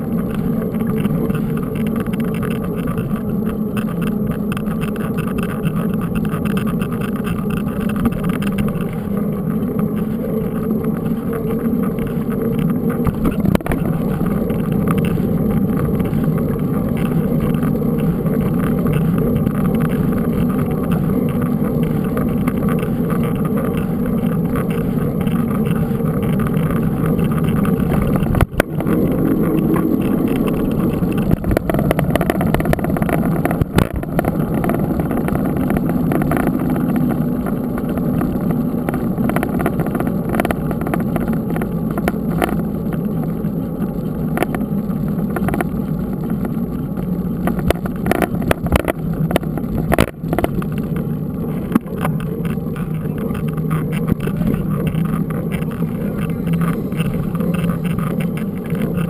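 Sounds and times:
bike tyres rolling on asphalt: 0:00.0 - 0:59.0
wind rumble on microphone: 0:00.0 - 0:59.0.

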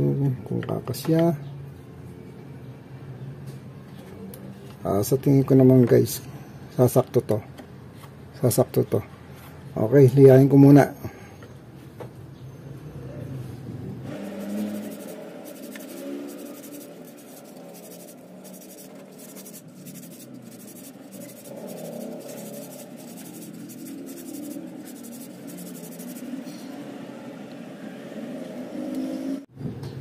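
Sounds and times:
rubber belt scraping on sandpaper: 0:14.2 - 0:26.7.

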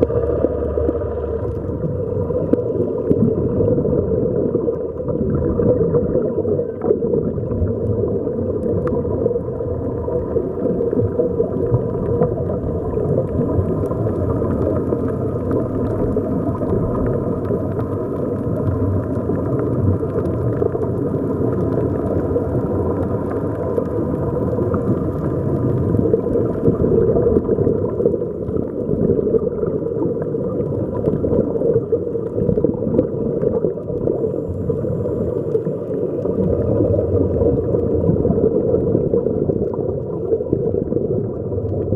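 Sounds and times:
faint steady hum: 0:00.0 - 0:41.9
underwater rumble: 0:00.0 - 0:41.9.

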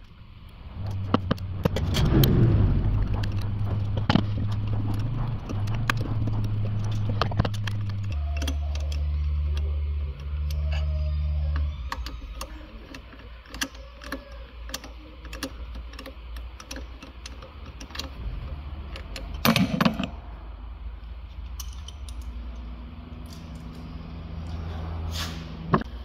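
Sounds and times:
metal clatter: 0:00.7 - 0:09.6
socket tool clicking on bolts: 0:11.5 - 0:18.2.

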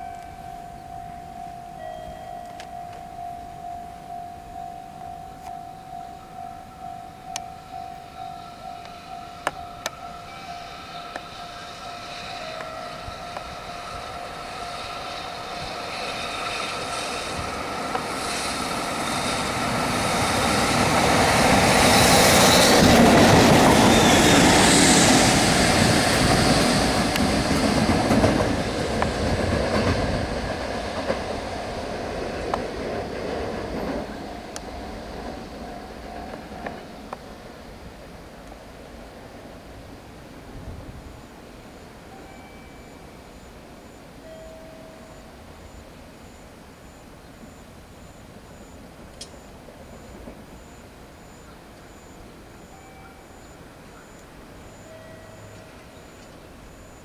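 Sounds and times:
level crossing warning bell: 0:00.0 - 0:27.9, 0:32.8 - 0:37.8, 0:40.9 - 0:57.0
train wheels clattering on rail: 0:07.2 - 0:37.6.

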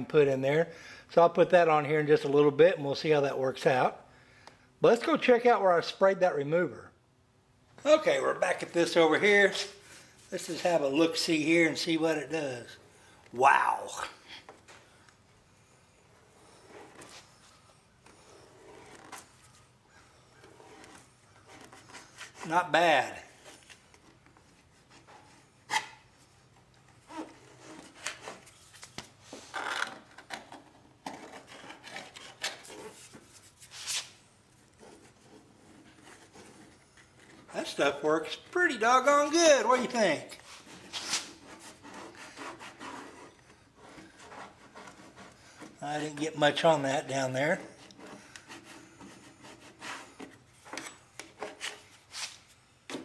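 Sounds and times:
hand scraper scraping paint: 0:34.8 - 0:52.4.

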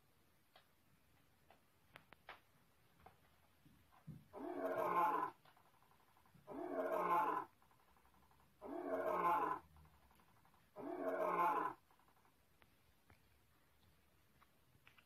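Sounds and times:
lion roar: 0:04.3 - 0:05.4, 0:06.4 - 0:07.6, 0:08.6 - 0:10.1, 0:10.7 - 0:11.8.

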